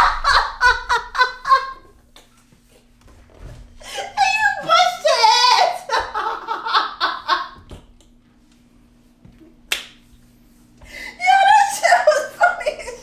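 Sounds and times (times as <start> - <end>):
person speaking: 3.8 - 6.0.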